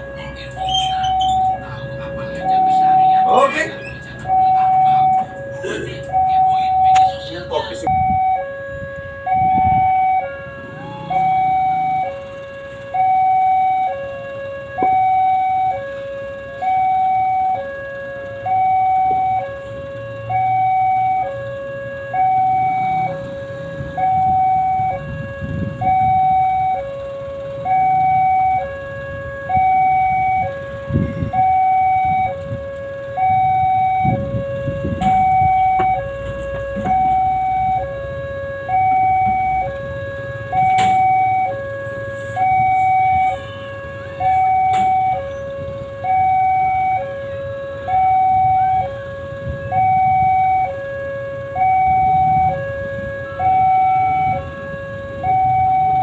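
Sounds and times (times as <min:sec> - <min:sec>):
level crossing two-tone alarm: 0:00.0 - 0:56.0
low rumbles: 0:18.6 - 0:56.0.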